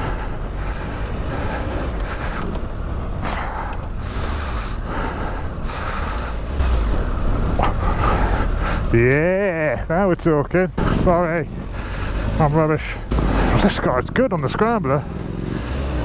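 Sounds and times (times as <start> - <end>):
wind and tyre noise: 0.0 - 16.0
motorcycle engine running: 10.8 - 16.0.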